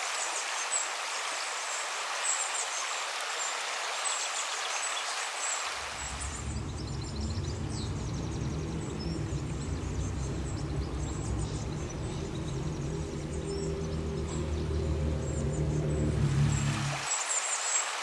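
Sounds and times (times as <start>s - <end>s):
running water: 0.0s - 18.0s
small birds chirping: 0.2s - 18.0s
low steady drone: 5.9s - 17.0s.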